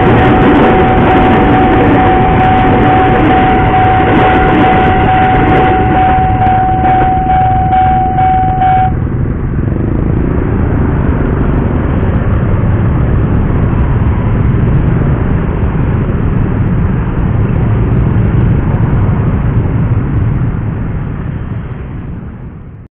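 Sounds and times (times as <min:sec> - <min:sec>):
level crossing alarm ringing: 0:00.0 - 0:09.0
motorcycle engines rumbling: 0:00.0 - 0:22.8.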